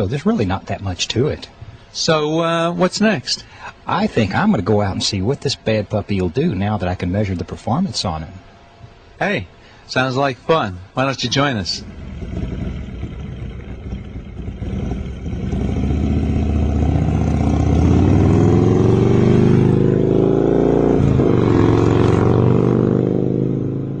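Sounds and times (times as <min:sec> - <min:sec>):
motorcycle engine accelerating past: 0:11.8 - 0:24.0.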